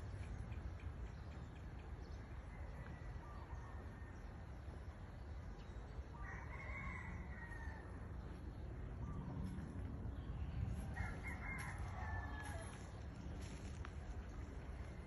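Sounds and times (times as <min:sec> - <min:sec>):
rooster crowing: 0:06.2 - 0:08.0, 0:10.9 - 0:13.0
steady low rumble: 0:07.0 - 0:15.0.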